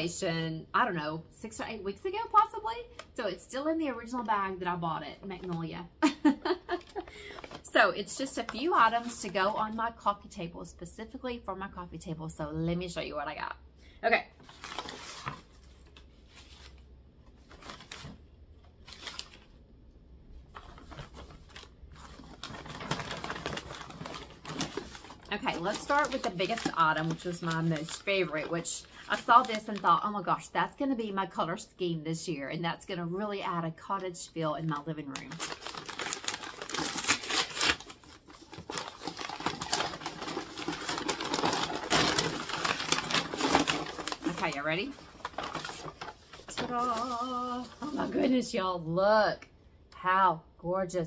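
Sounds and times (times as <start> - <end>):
paper and wrapping rustling: 5.3 - 9.9, 14.4 - 19.6, 20.4 - 30.0, 34.7 - 48.4.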